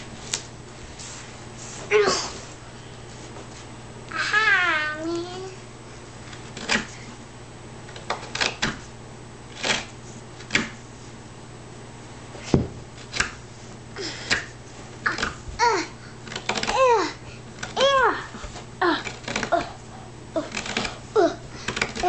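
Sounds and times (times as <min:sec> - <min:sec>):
carving tool cutting wood: 0:20.4 - 0:21.0.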